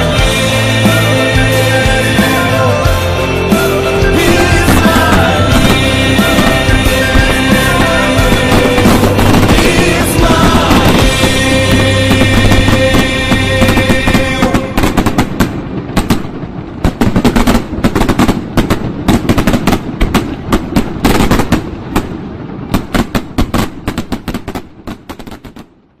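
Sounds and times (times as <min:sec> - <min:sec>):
song music: 0:00.0 - 0:16.0
fireworks bangs and crackles: 0:00.0 - 0:26.0.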